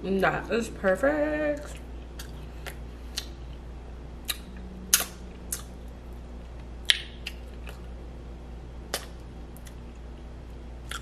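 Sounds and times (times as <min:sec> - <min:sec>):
wet mouth smacks and lip clicks: 0:04.2 - 0:05.7, 0:06.8 - 0:07.8, 0:08.9 - 0:09.8.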